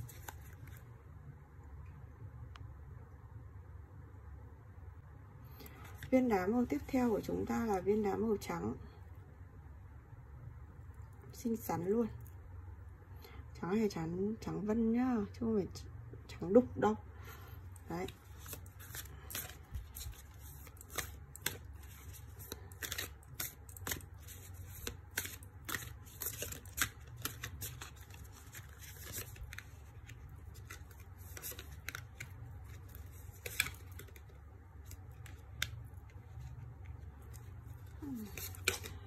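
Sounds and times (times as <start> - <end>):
cards being shuffled: 0.0 - 0.9, 18.0 - 39.0
cards laid on cloth: 17.7 - 39.0.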